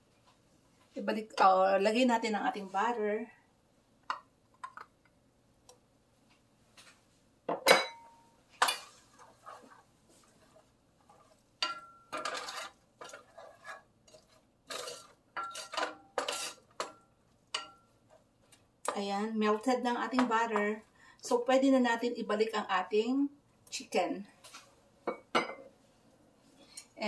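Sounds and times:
wooden spatula scraping skillet: 8.6s - 18.5s.

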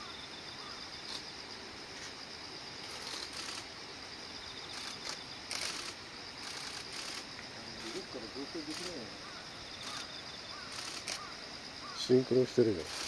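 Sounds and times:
high insect trill: 0.0s - 13.0s
outdoor background hiss: 0.0s - 13.0s.

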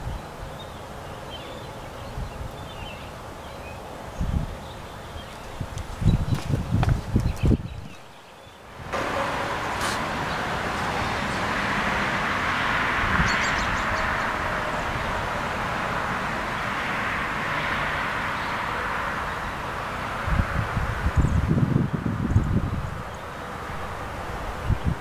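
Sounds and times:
distant road traffic: 0.0s - 25.0s
bird chirping: 0.1s - 11.5s, 13.2s - 15.2s.

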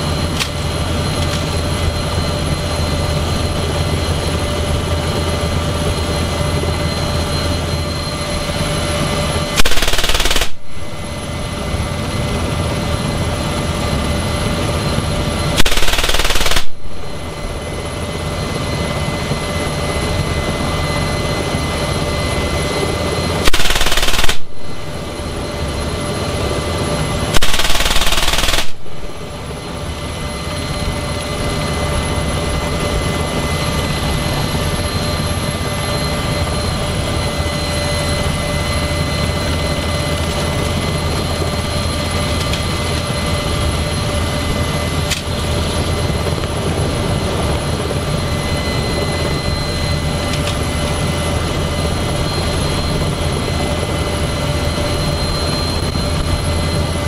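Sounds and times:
helicopter turbine and rotor noise: 0.0s - 57.0s
machine gun bursts: 9.6s - 10.6s, 15.6s - 16.8s, 23.5s - 24.5s, 27.4s - 28.8s.

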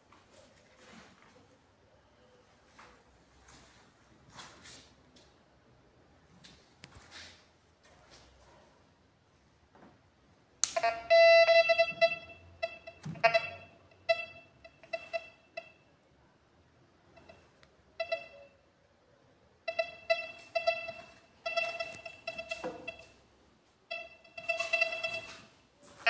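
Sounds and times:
short electronic beeps: 10.9s - 15.9s, 19.7s - 23.2s, 23.9s - 25.5s.

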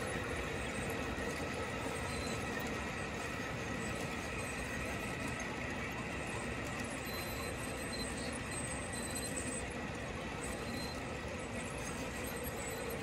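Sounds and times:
high wheel squeal: 10.4s - 11.1s.

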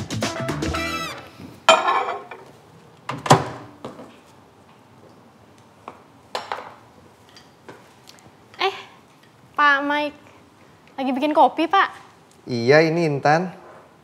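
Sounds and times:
background music: 0.0s - 1.3s
cups and crockery clinking: 1.7s - 2.5s.

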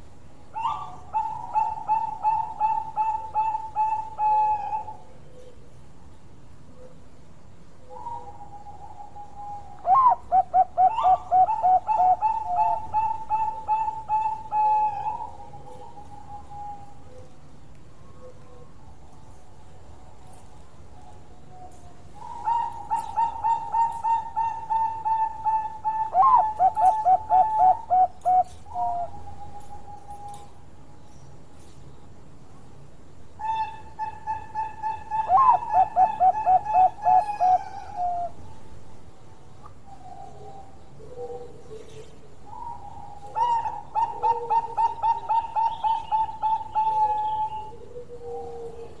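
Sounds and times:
dove cooing: 0.5s - 5.7s, 7.8s - 17.4s, 21.0s - 30.6s, 33.4s - 38.4s, 39.9s - 49.0s.

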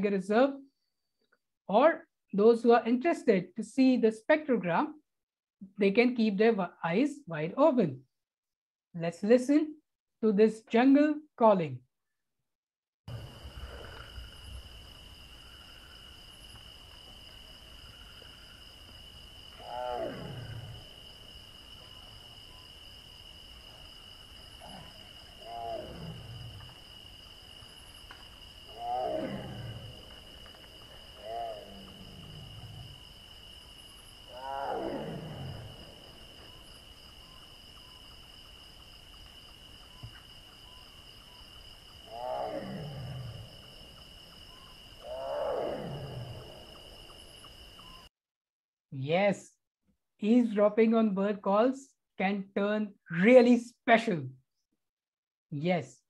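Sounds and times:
tiger roaring: 13.1s - 15.0s, 19.5s - 21.1s, 24.4s - 26.9s, 27.8s - 33.2s, 34.2s - 36.6s, 42.1s - 44.0s, 45.0s - 47.0s
crickets droning: 13.1s - 48.1s.

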